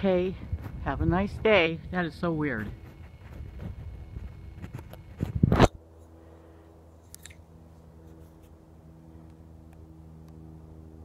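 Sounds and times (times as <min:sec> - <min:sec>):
faint steady low hum: 0:00.0 - 0:11.0
small clicks: 0:07.0 - 0:07.4.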